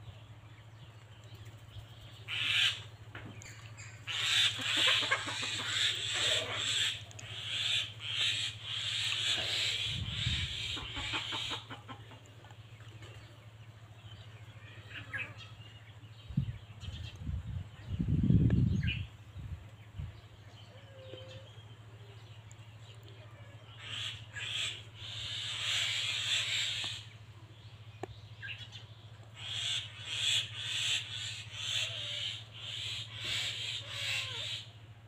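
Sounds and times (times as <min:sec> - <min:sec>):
steady low hum: 0:00.0 - 0:35.0
chickens clucking: 0:02.2 - 0:13.9.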